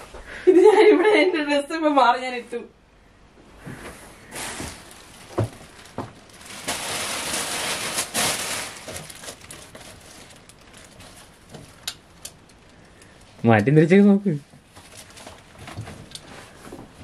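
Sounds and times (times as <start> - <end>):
rustling and handling: 3.6 - 17.0.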